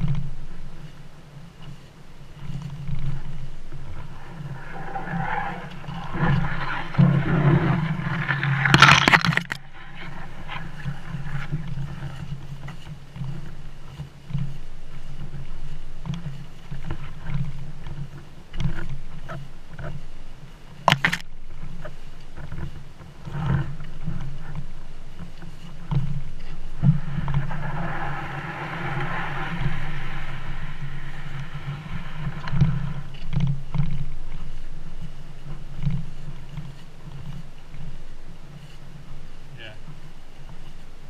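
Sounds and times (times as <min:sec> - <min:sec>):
rushing noise: 0:03.6 - 0:11.5, 0:26.4 - 0:33.3.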